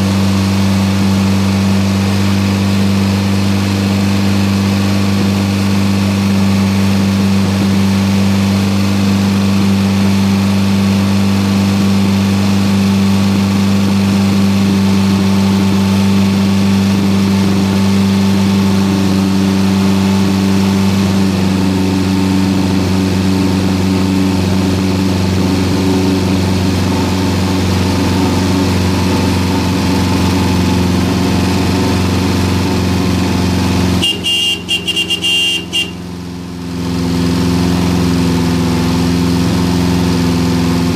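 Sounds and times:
car engine running steadily: 0:00.0 - 0:40.9
short high-pitched buzzing tone: 0:34.0 - 0:36.1.

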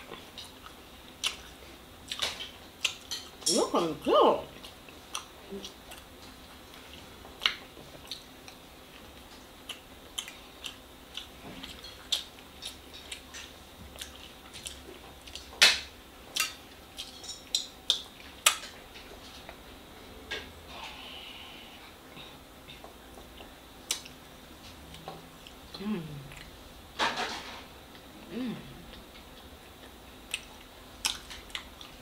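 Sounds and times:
person chewing: 0:00.0 - 0:03.3, 0:04.5 - 0:15.6, 0:16.3 - 0:19.6, 0:22.1 - 0:26.6, 0:28.8 - 0:32.0.

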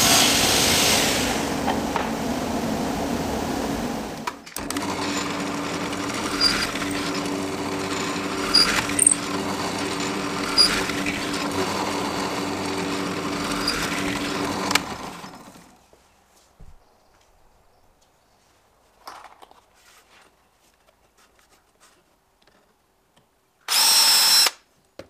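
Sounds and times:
power drill boring through wood: 0:00.0 - 0:02.1, 0:04.0 - 0:15.8, 0:23.7 - 0:24.6
table saw running: 0:00.0 - 0:15.8.

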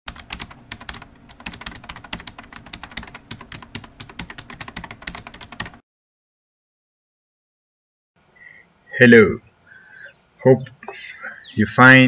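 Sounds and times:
keyboard typing: 0:00.1 - 0:05.8.

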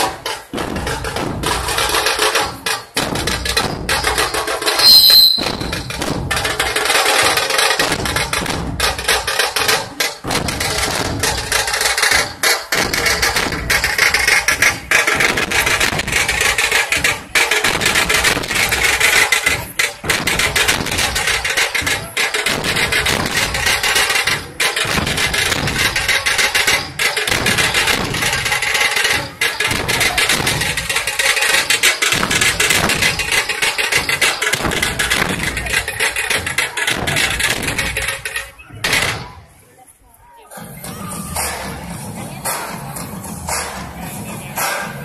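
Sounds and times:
drum ensemble fast beat: 0:00.0 - 0:39.6, 0:40.4 - 0:45.0
shrill high tone: 0:04.8 - 0:05.9.

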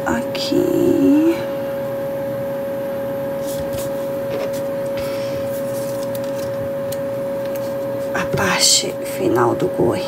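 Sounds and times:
background hum: 0:00.0 - 0:10.0
mid-pitched whine: 0:00.0 - 0:10.0
cardstock rustling: 0:03.4 - 0:06.6.

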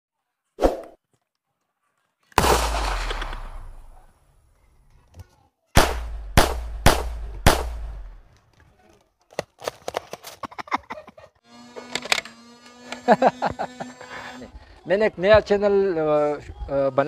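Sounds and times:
gunshots: 0:02.4 - 0:04.1, 0:05.8 - 0:08.2.

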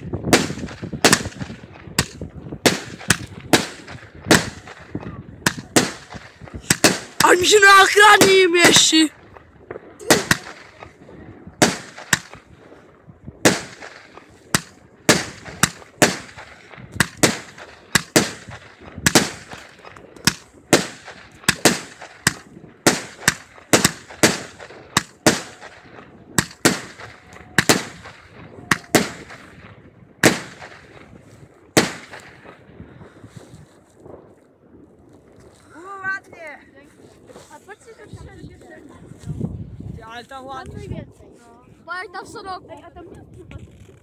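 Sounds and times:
fireworks bangs with echo: 0:00.1 - 0:12.6, 0:13.4 - 0:31.2, 0:31.8 - 0:32.7.

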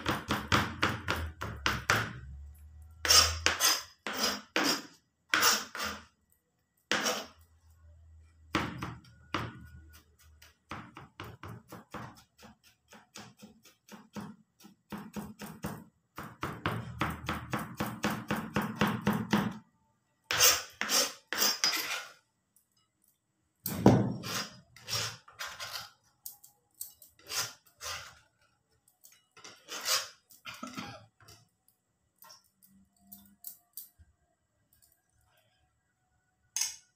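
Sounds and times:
knife chopping on plastic board: 0:00.0 - 0:02.2, 0:10.7 - 0:19.6.

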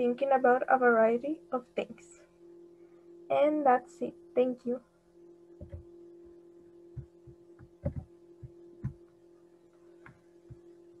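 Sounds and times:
steady low hum: 0:00.0 - 0:11.0
soft thumps and knocks: 0:05.6 - 0:05.9, 0:06.9 - 0:09.1.

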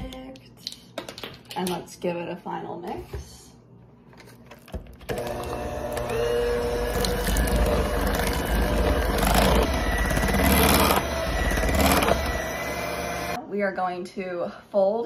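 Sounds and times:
electric hand mixer running: 0:05.1 - 0:13.4.

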